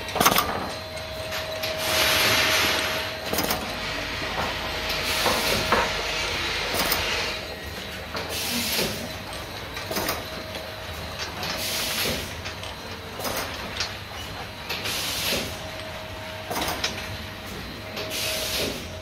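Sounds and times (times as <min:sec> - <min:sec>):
bottle-filling machine hiss: 0:11.6 - 0:12.3, 0:14.8 - 0:15.6, 0:18.1 - 0:18.9.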